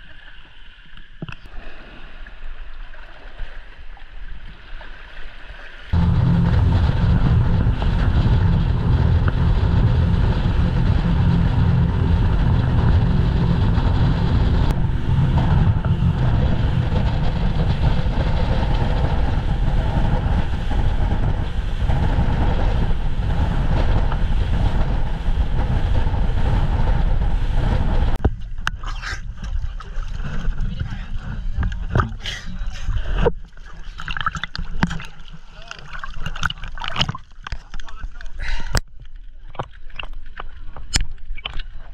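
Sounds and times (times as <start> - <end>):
rushing water: 0.0 - 38.8
wind on the microphone: 5.9 - 33.4
speedboat engine roar: 6.0 - 28.6.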